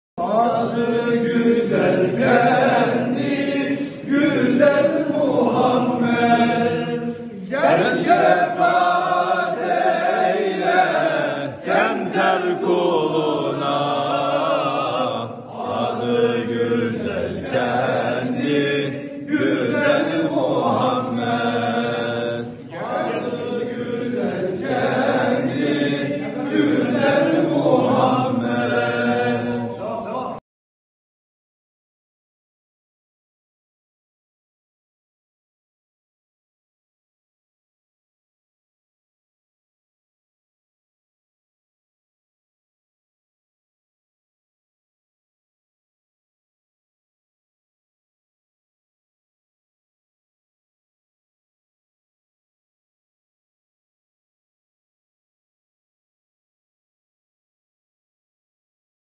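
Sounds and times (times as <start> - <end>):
men chanting hymns: 0.2 - 30.4.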